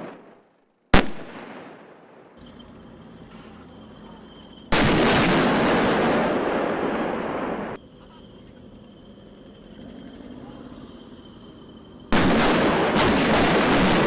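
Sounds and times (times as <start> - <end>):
tank guns firing: 4.7 - 7.8, 12.1 - 14.0.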